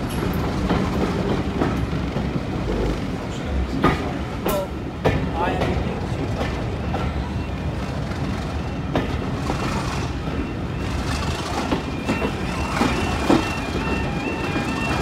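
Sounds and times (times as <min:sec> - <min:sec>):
train wheels rumbling and clicking: 0:00.0 - 0:15.0
level crossing alarm: 0:10.1 - 0:15.0.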